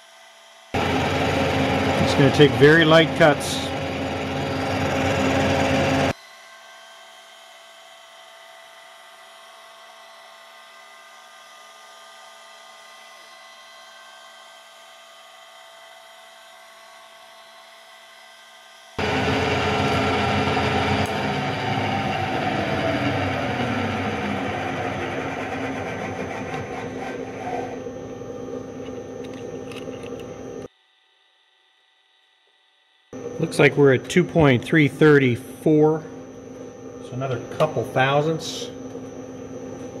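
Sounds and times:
milling machine cutting: 0.8 - 6.2, 19.0 - 30.7
steady machine hum: 0.8 - 6.9, 19.0 - 30.7, 33.0 - 40.0.

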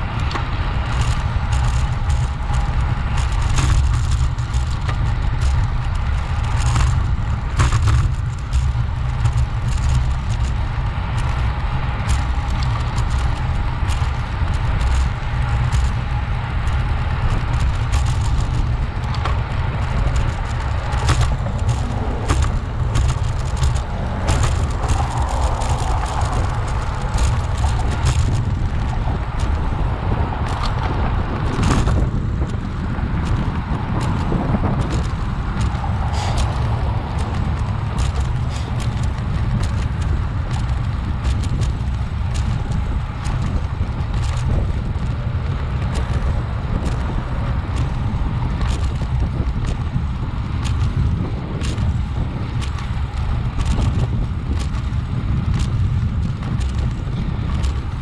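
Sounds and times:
road noise: 0.0 - 58.0
wind buffeting microphone: 0.0 - 58.0
clicks and rattles: 16.6 - 29.8.

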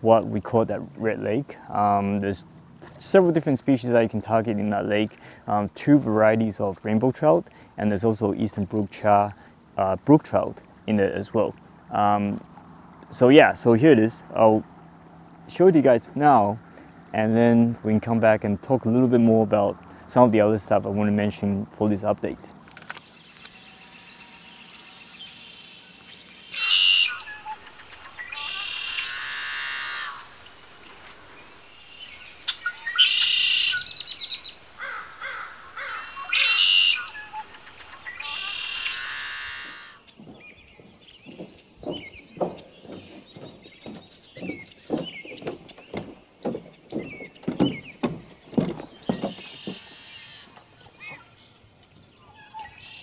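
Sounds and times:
birds calling and trilling: 10.6 - 53.0.

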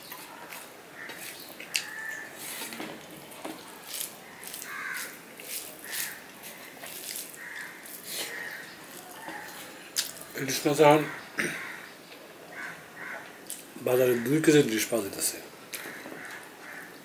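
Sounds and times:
fingers squishing wet food: 0.1 - 10.3.

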